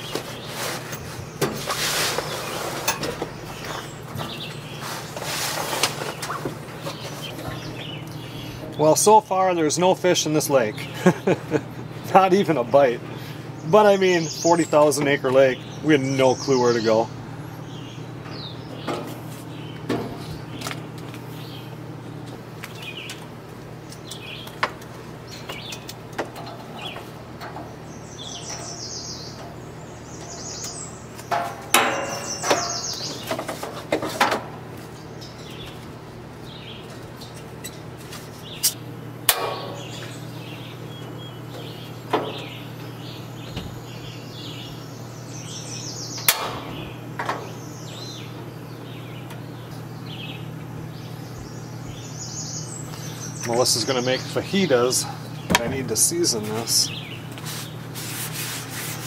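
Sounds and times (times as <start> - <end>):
songbirds chirping and singing: 0.0 - 58.0
steady low hum: 0.0 - 59.0
griddle knocks and clatter: 18.2 - 21.1, 24.5 - 27.8, 31.2 - 34.8, 39.3 - 40.2, 41.6 - 42.6, 46.2 - 47.5.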